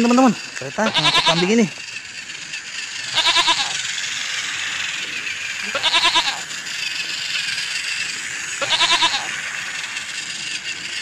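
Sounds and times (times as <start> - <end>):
toy train motor whirring: 0.0 - 11.0
toy goat bleat: 0.7 - 1.7, 3.0 - 3.9, 5.6 - 6.6, 8.6 - 9.5.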